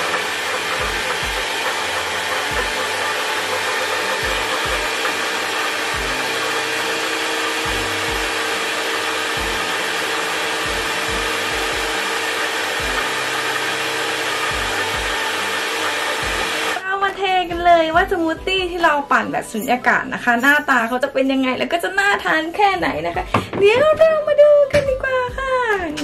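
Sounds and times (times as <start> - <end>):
blender motor whirring: 0.0 - 16.8.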